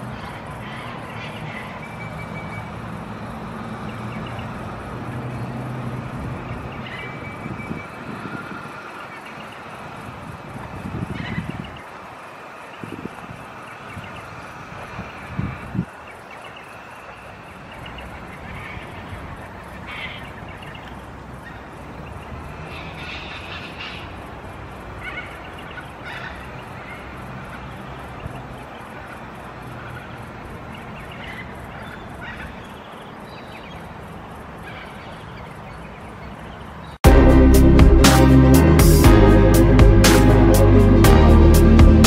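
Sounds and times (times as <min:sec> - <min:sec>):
steady low rumble: 0:37.0 - 0:42.0.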